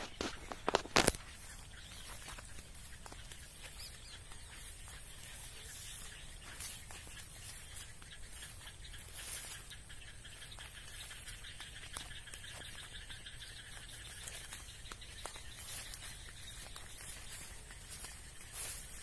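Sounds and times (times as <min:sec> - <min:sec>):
faint scattered clicks: 0:00.0 - 0:18.8.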